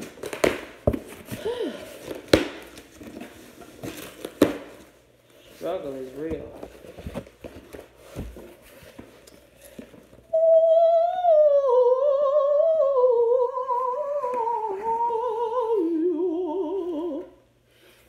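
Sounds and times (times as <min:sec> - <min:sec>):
woman singing a long note: 0:10.3 - 0:17.4.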